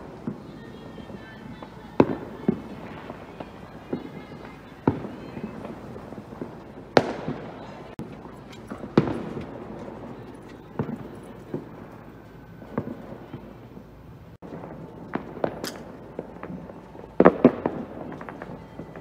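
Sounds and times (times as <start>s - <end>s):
fireworks bangs: 0.0s - 19.0s.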